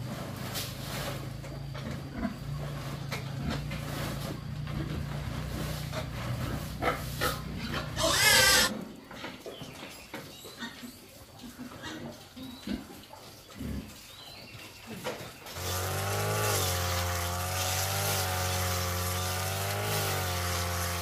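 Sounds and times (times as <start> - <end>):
pigs grunting: 1.4 - 8.8, 10.6 - 14.1
pig squealing: 7.6 - 8.7.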